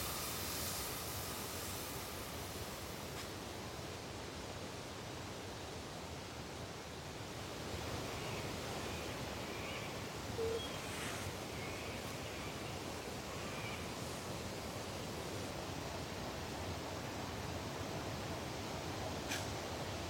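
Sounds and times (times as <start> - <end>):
steady rushing outdoor noise: 0.0 - 20.0
faint high bird chirps: 9.0 - 12.6.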